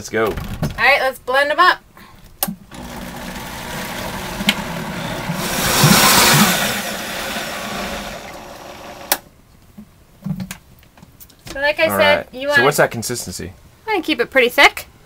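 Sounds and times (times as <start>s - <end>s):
blender running: 2.7s - 9.2s
blender switch click: 4.4s - 4.7s.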